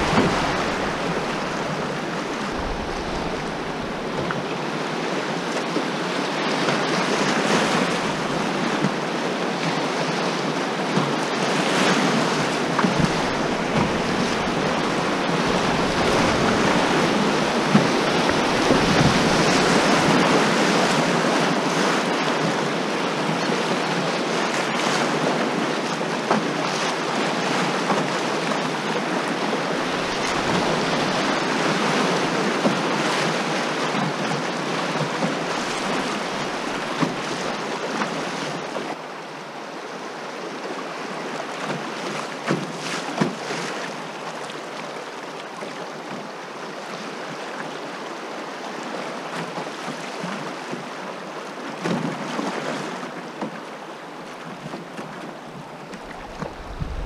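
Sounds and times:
whitewater rushing: 0:00.0 - 0:53.3, 0:55.3 - 0:57.0.

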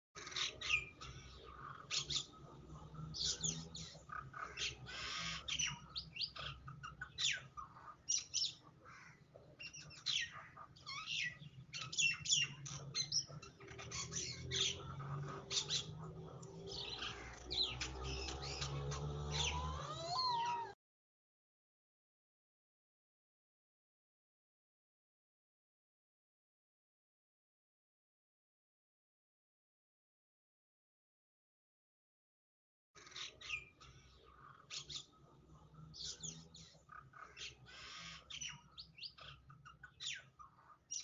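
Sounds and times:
birds chirping: 0:00.2 - 0:20.8, 0:33.0 - 0:41.0.

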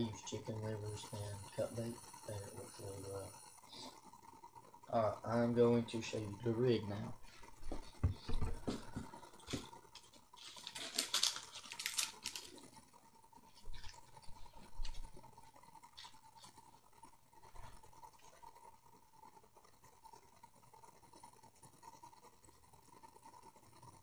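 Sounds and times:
plastic packaging rustling: 0:08.4 - 0:12.6.

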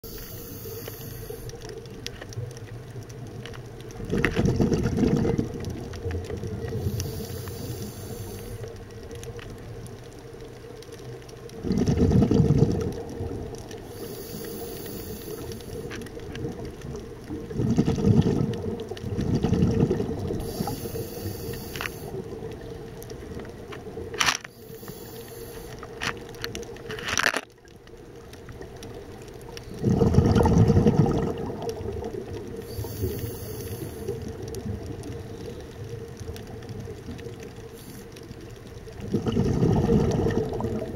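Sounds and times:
regulator breathing hiss: 0:00.0 - 0:01.6, 0:06.8 - 0:08.7, 0:13.8 - 0:15.9, 0:20.4 - 0:22.2, 0:24.5 - 0:26.0, 0:32.6 - 0:34.2, 0:37.7 - 0:38.2
exhaust bubbles rumbling: 0:04.0 - 0:08.2, 0:11.6 - 0:14.0, 0:16.3 - 0:21.1, 0:29.7 - 0:37.5, 0:38.8 - 0:40.9.

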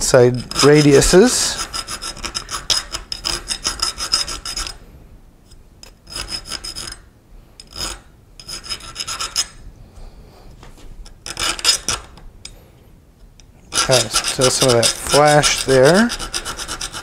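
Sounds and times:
file rasping on metal: 0:00.3 - 0:04.8, 0:06.0 - 0:07.0, 0:07.6 - 0:09.6, 0:11.2 - 0:12.1, 0:13.7 - 0:17.0.

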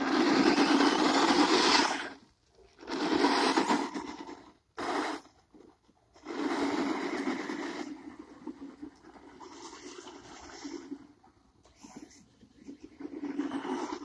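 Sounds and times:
toy truck electric motor: 0:00.0 - 0:05.4, 0:06.2 - 0:10.9.

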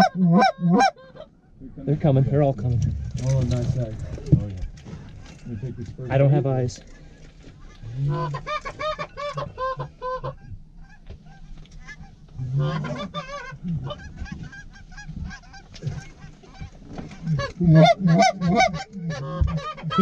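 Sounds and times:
goose honking: 0:00.0 - 0:01.3, 0:07.0 - 0:20.0.

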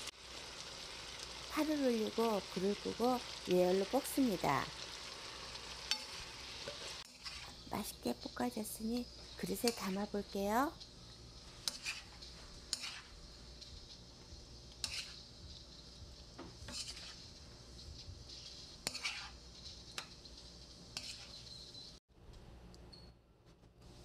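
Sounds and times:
faint sizzle: 0:00.0 - 0:22.0
spoon scraping and clinking pan: 0:16.6 - 0:17.3, 0:18.8 - 0:20.2, 0:21.0 - 0:21.7.

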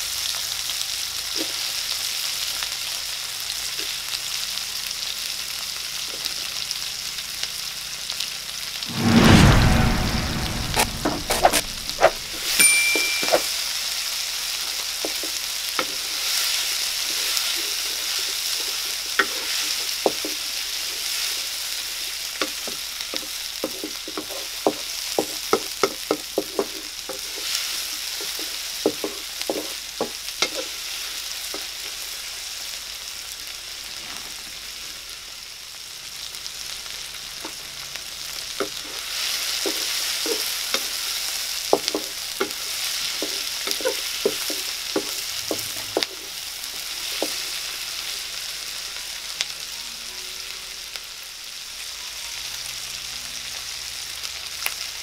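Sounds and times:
vegetables sizzling in oil: 0:00.0 - 0:08.9, 0:11.4 - 0:55.0
wooden spatula scraping pan: 0:41.8 - 0:46.2.

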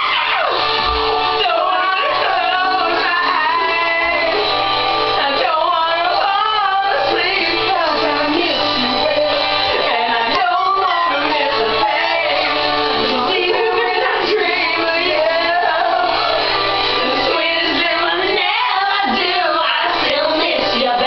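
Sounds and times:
rock song with singer: 0:00.0 - 0:21.0.

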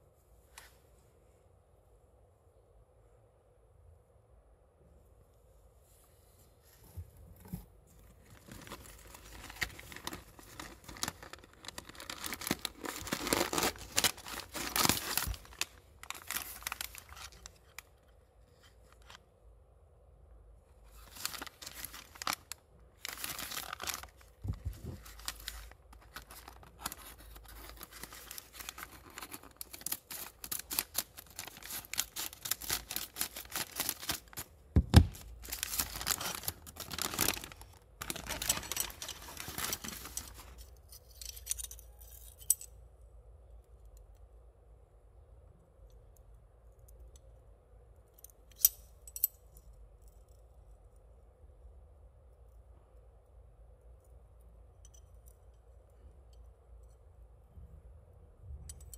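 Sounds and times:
plastic wrap crinkling and tearing: 0:08.2 - 0:18.0, 0:20.8 - 0:40.6.

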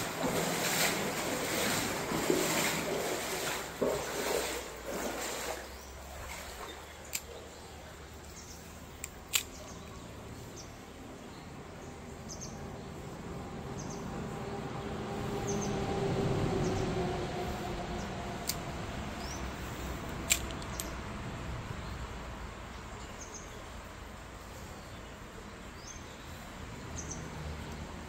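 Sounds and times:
small birds chirping: 0:05.6 - 0:13.0, 0:18.0 - 0:21.1, 0:21.7 - 0:28.0.

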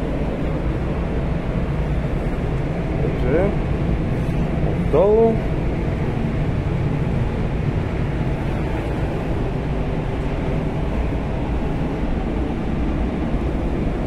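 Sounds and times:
ventilation rumble and air rush: 0:00.0 - 0:14.0.

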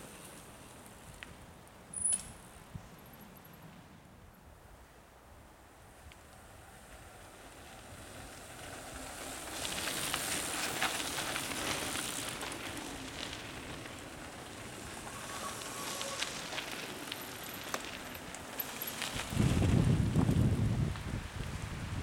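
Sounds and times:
bike tyres crackling over leaves: 0:06.0 - 0:22.0.

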